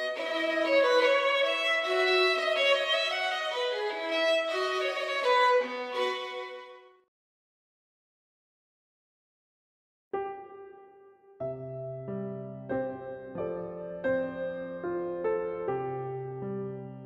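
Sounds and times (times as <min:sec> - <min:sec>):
violin melody: 0:00.0 - 0:07.0.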